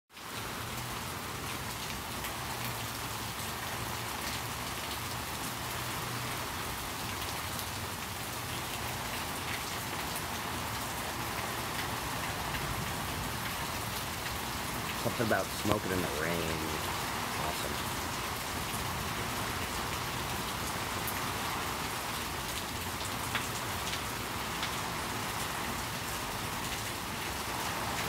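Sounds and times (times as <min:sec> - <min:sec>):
steady rain falling: 0:00.1 - 0:28.0
raindrops ticking: 0:07.0 - 0:21.3, 0:22.2 - 0:28.0.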